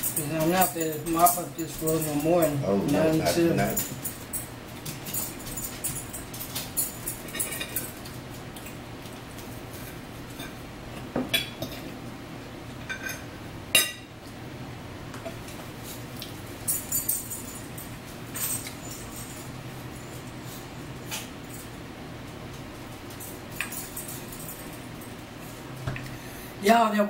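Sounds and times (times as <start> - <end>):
forks clinking on plates: 0.0 - 8.8, 12.8 - 14.1, 16.2 - 21.8, 23.1 - 25.2.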